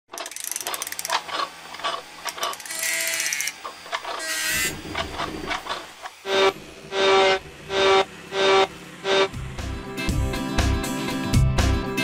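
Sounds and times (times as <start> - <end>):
ratchet-like clicking: 0.1 - 5.8
short mechanical whirs: 0.1 - 9.4.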